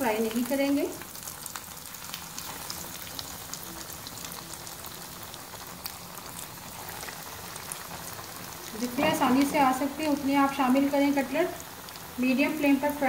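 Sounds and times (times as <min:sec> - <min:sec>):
cutlets sizzling in oil: 0:00.0 - 0:13.0.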